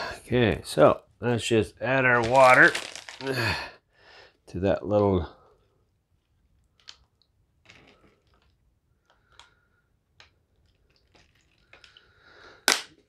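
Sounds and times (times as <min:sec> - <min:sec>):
plastic bag rustling: 0:02.1 - 0:03.6
water dripping: 0:10.2 - 0:12.3.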